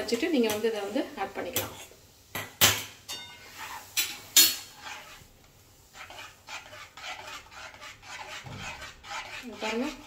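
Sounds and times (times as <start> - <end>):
spatula scraping pan: 0.0 - 10.0
metal spatula clanking on pan: 4.0 - 5.0.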